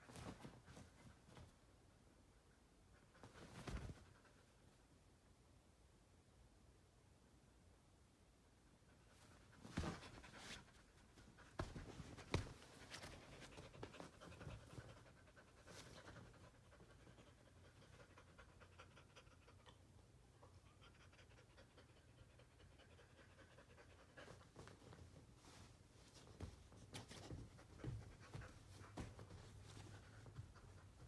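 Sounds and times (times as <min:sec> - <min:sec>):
knocks and rustles of movement: 0:00.0 - 0:01.8, 0:03.0 - 0:04.7, 0:09.0 - 0:18.0, 0:24.0 - 0:31.0.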